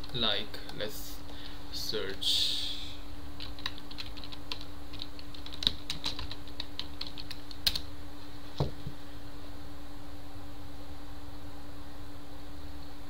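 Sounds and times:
typing on computer keyboard: 0:03.4 - 0:07.8.

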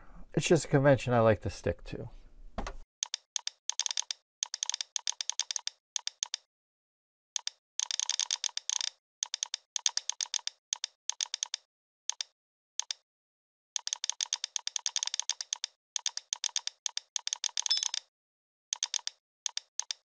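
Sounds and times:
computer keyboard and mouse clicking: 0:03.0 - 0:06.5, 0:07.4 - 0:13.0, 0:13.8 - 0:18.1, 0:18.7 - 0:20.0.

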